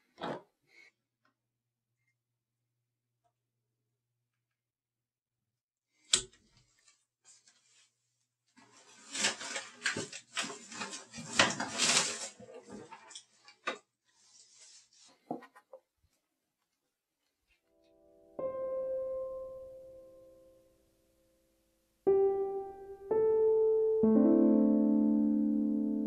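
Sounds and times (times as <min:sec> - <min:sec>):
plastic bin liner rustling: 0:08.5 - 0:15.3.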